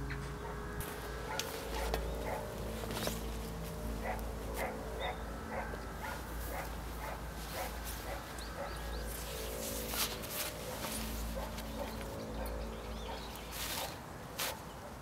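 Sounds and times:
dog barking: 1.3 - 2.6, 4.0 - 8.8.

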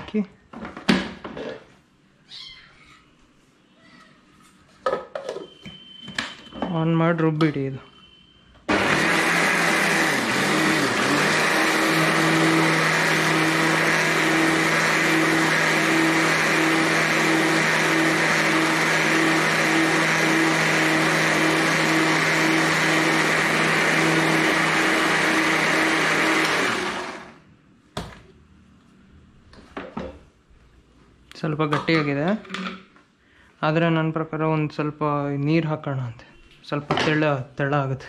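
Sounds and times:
mixer grinder motor hum: 8.7 - 27.4.

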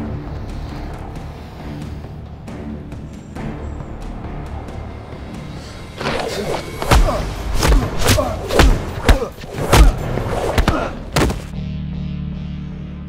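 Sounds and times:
low music drone: 0.0 - 10.2
punch thuds: 6.8 - 11.6.

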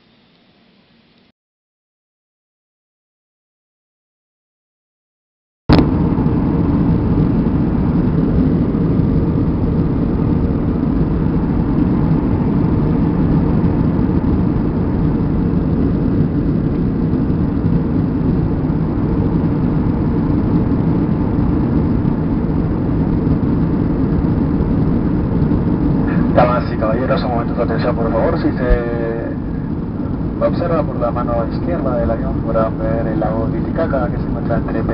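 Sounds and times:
rushing air: 5.7 - 30.7
airliner engine drone: 5.7 - 34.9
faint steady hum: 5.7 - 34.9.

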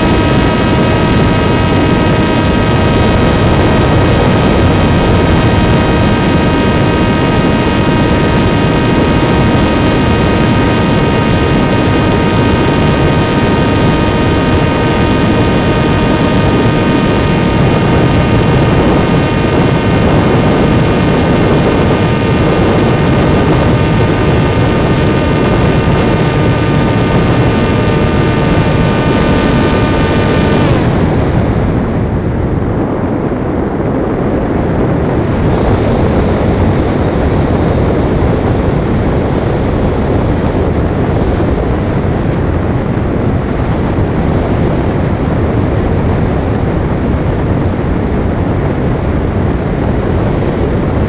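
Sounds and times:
model plane motor whine: 0.0 - 31.3
wind rush: 0.0 - 51.0.

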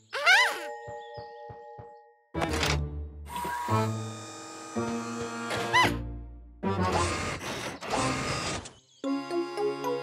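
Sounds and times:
swooping squeak: 0.1 - 0.8.

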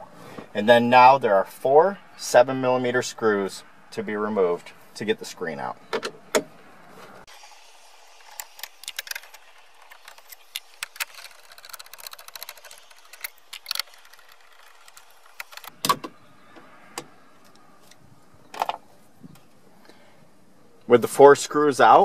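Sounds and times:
nut driver clicking and rattling: 8.3 - 16.1
sharp clicks: 8.3 - 16.1.

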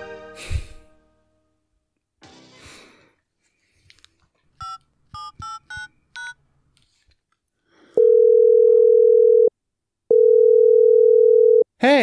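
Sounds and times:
telephone keypad beeps: 4.6 - 6.4.

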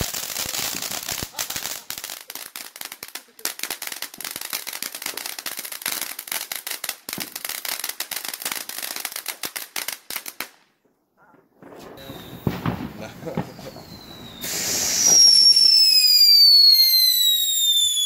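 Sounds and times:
firework fountain hissing: 0.0 - 8.2, 11.9 - 18.0
firework crackling: 0.0 - 10.6, 11.5 - 18.0.

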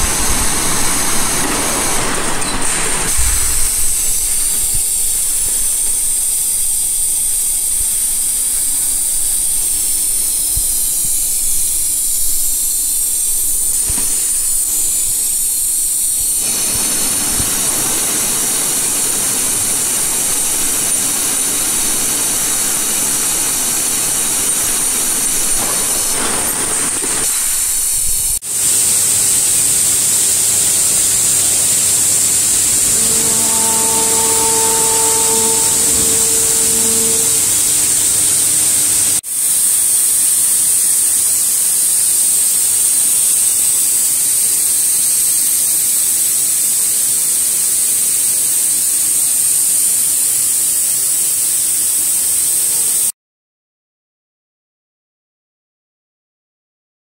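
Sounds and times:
rough machine noise: 0.0 - 43.6
high-pitched machinery hiss: 0.0 - 53.1
steady hum tones: 28.6 - 39.2.

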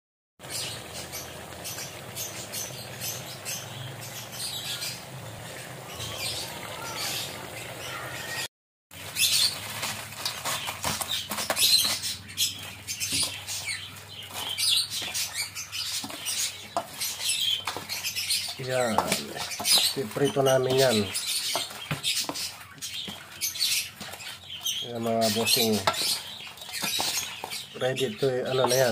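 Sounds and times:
crackling sizzle of deep-frying: 0.4 - 28.9
crabs moved around metal bowl: 8.9 - 28.9.

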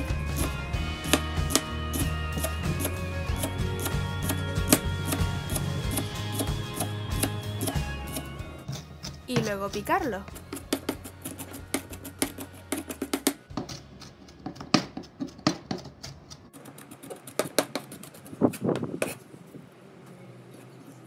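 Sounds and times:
knife chopping on cutting board: 10.4 - 17.9.

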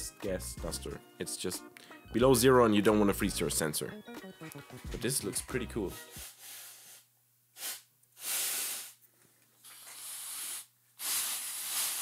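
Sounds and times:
gas duster can hissing bursts: 7.6 - 9.0, 9.8 - 12.0.

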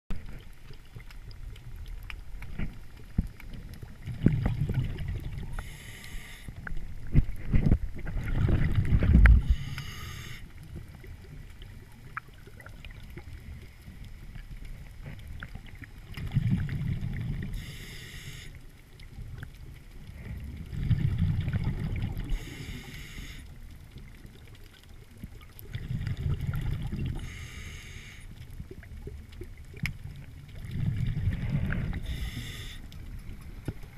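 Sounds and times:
exhaled bubbles rumbling: 0.1 - 5.8, 6.5 - 9.7, 10.6 - 17.6, 19.0 - 22.7, 23.6 - 27.3, 28.4 - 33.9
regulator inhale hiss: 5.5 - 6.7, 9.4 - 10.6, 17.4 - 18.6, 22.3 - 23.6, 27.2 - 28.4, 31.3 - 33.1.

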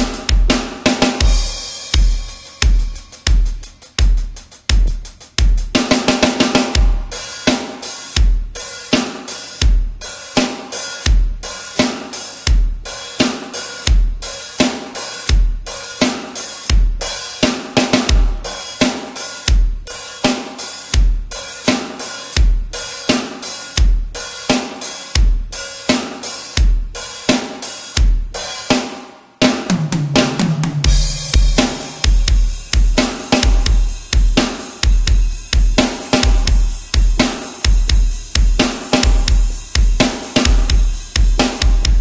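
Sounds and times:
drum kit playing: 0.0 - 42.0.

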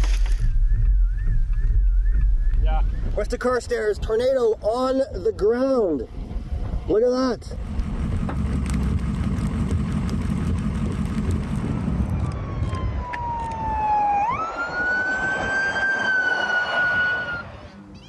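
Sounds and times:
low rumbling noise: 0.0 - 18.0
fire truck siren wailing: 11.9 - 17.8.

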